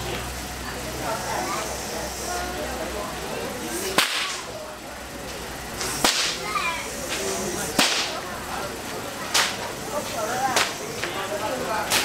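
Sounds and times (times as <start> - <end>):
whip cracks: 4.0 - 4.4, 5.8 - 6.4, 7.1 - 8.2.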